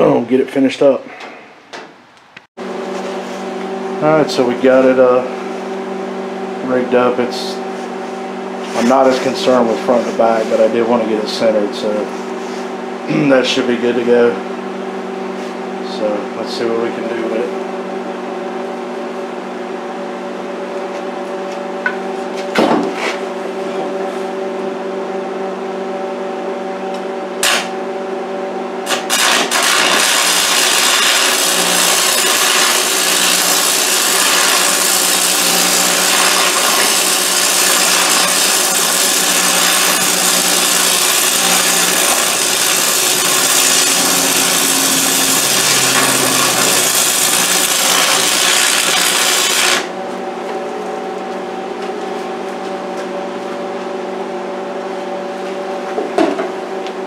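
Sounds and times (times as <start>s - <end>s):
welder hum: 2.4s - 17.6s, 26.9s - 27.9s, 28.8s - 51.3s
welding arc crackling: 27.4s - 27.7s, 28.8s - 49.9s.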